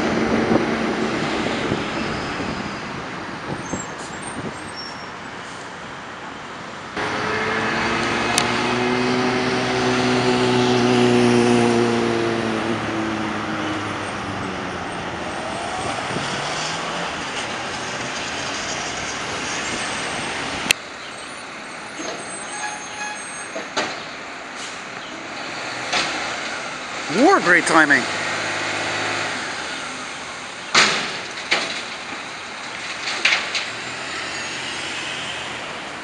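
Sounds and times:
street traffic noise: 0:00.0 - 0:36.0
diesel engine droning: 0:07.0 - 0:20.7.

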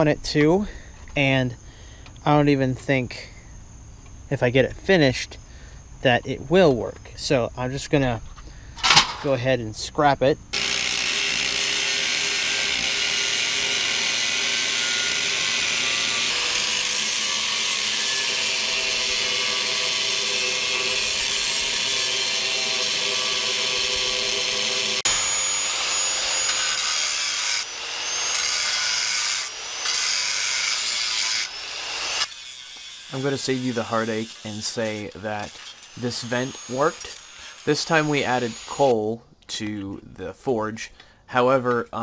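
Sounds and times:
angle grinder cutting steel: 0:10.6 - 0:39.1.

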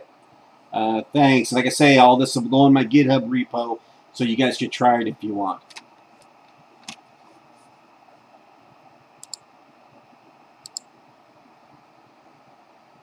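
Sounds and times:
low room hiss: 0:00.0 - 0:13.0
computer mouse clicks: 0:09.2 - 0:09.5, 0:10.6 - 0:10.9.

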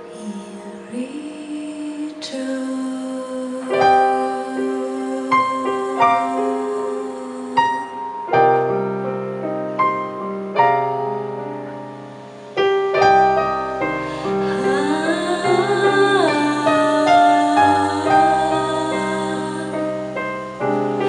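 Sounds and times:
woman singing: 0:00.0 - 0:08.3, 0:14.0 - 0:20.2
piano ballad chords: 0:00.0 - 0:21.0.

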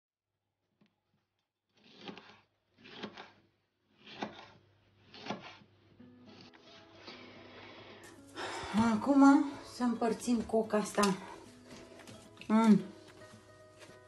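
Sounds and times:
knife chopping on wooden board: 0:01.8 - 0:03.4, 0:04.0 - 0:05.7.

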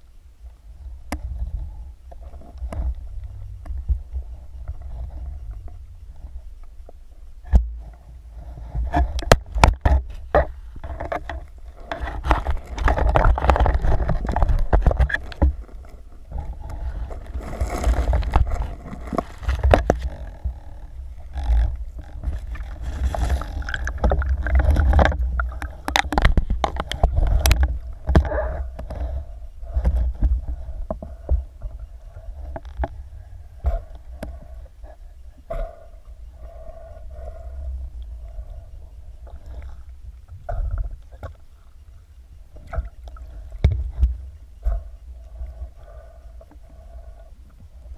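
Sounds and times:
low rumble: 0:00.0 - 0:47.9
underwater water rushing: 0:22.2 - 0:29.1.

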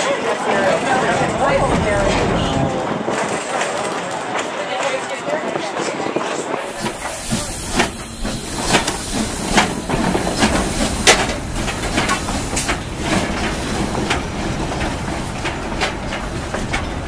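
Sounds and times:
steam locomotive exhaust chuffs: 0:06.5 - 0:17.0
steam hiss: 0:06.6 - 0:12.9.

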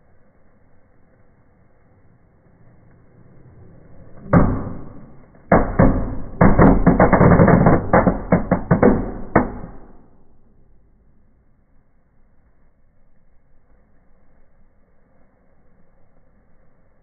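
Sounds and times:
firecracker bangs: 0:04.2 - 0:10.3
cracks and pops: 0:04.4 - 0:10.2.

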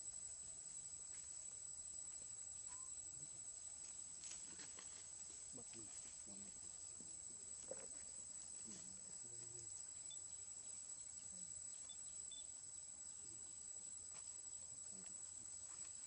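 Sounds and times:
high-pitched insect drone: 0:06.4 - 0:16.0.

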